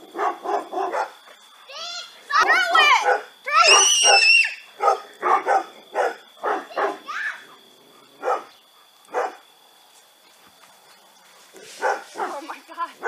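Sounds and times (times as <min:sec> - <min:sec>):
dogs barking: 0:00.0 - 0:01.8, 0:02.4 - 0:07.2, 0:07.8 - 0:09.5, 0:11.6 - 0:13.0.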